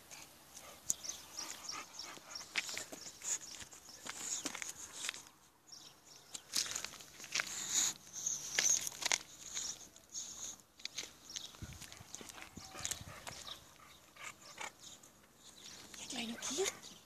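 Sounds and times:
dog sniffing and snuffling: 0:00.0 - 0:05.4, 0:07.1 - 0:16.9.

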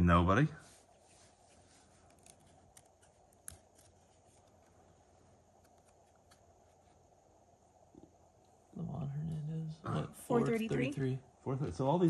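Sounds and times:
cards clicking as handled: 0:02.0 - 0:04.7, 0:05.6 - 0:06.4.

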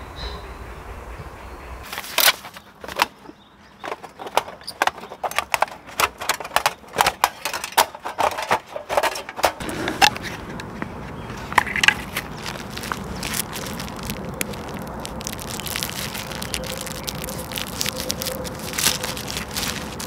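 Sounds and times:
metal clinks and knocks: 0:03.8 - 0:09.6
rough metal scraping: 0:03.8 - 0:20.0.

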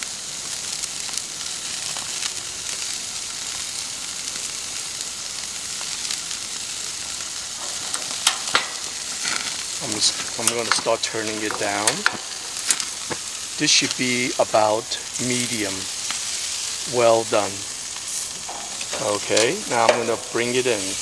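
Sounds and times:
steaks sizzling on a grill: 0:00.0 - 0:21.0.

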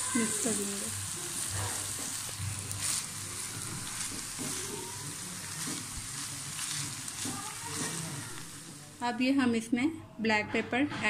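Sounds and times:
vegetables sizzling in a pan: 0:00.0 - 0:09.6
spatula scraping a pan: 0:01.5 - 0:08.6.

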